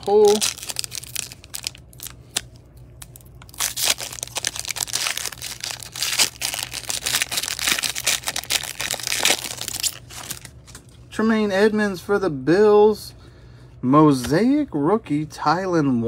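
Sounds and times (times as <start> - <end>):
foil wrapper tearing and crinkling: 0.0 - 10.8.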